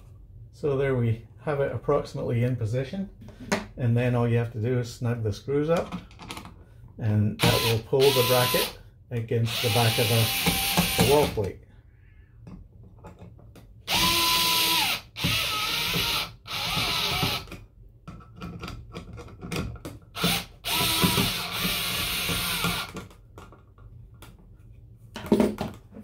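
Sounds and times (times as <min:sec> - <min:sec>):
electric screwdriver whine: 0:07.4 - 0:08.7, 0:09.5 - 0:11.3, 0:13.9 - 0:17.5, 0:20.2 - 0:23.0.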